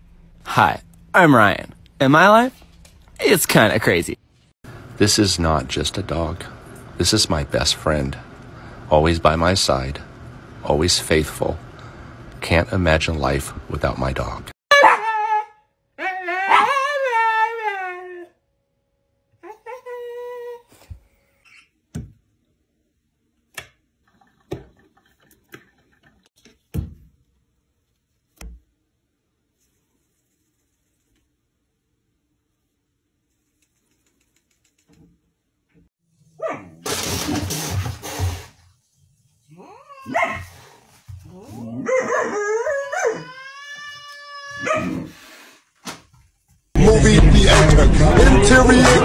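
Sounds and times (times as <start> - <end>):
dog yelping and whining: 14.7 - 18.3, 39.6 - 40.6, 41.4 - 43.5, 44.5 - 45.1.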